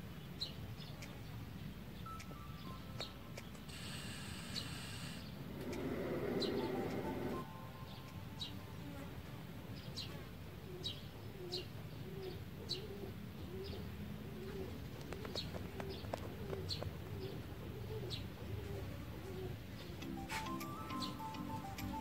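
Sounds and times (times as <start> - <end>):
small birds chirping: 0.0 - 9.0, 9.7 - 22.0
dove cooing: 4.7 - 7.6, 10.5 - 22.0.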